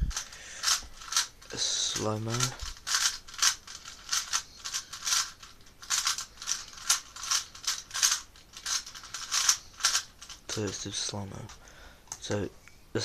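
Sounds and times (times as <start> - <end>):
puzzle cube clicking: 2.3 - 10.8.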